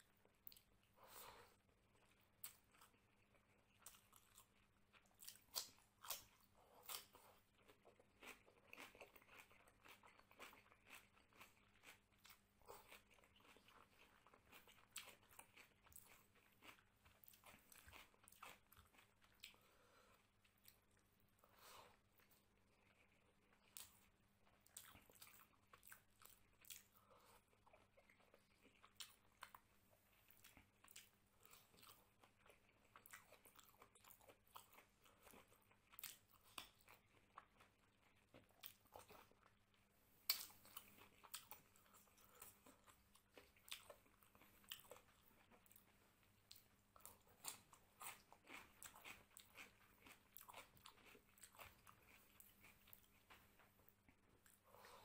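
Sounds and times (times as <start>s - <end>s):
wet chewing and smacking: 0.0s - 55.0s.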